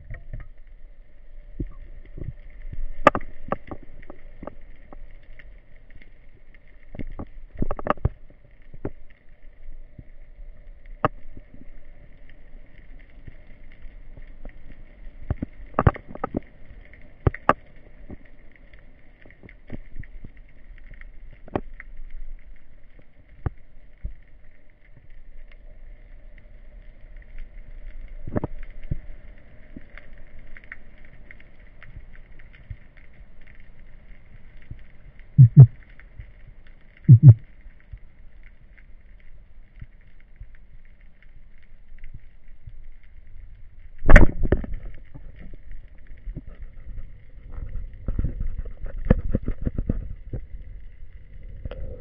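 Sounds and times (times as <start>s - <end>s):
faint underwater hum: 0.0s - 52.0s
sharp clicks and knocks: 35.4s - 35.7s, 37.1s - 37.4s.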